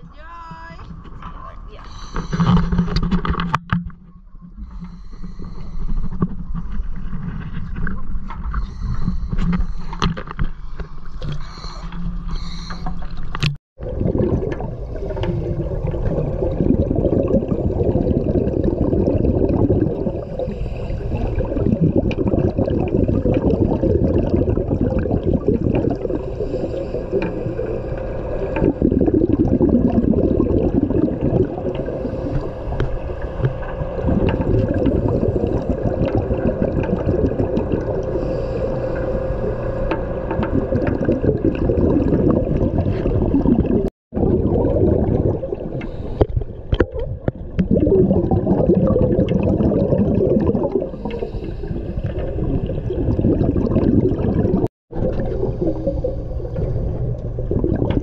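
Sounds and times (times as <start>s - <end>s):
low hum: 0.0s - 48.7s, 50.6s - 58.0s
underwater churning and gurgling: 0.0s - 58.0s.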